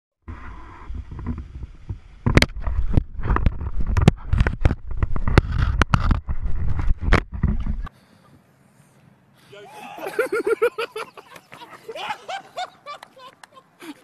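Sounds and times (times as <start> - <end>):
low rumble of handling and water: 0.3 - 7.9.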